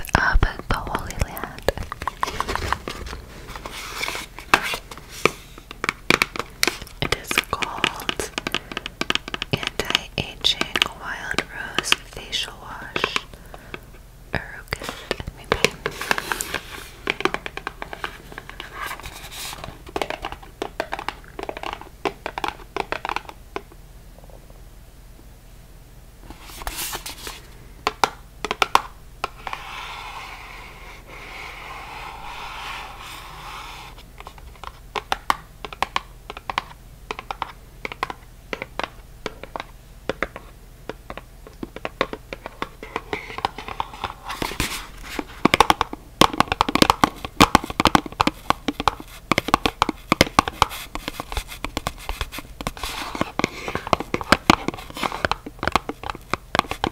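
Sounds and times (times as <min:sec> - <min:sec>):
soft rubbing: 0:02.0 - 0:05.6, 0:29.4 - 0:34.1
fingernails tapping on cardboard box: 0:07.8 - 0:10.0.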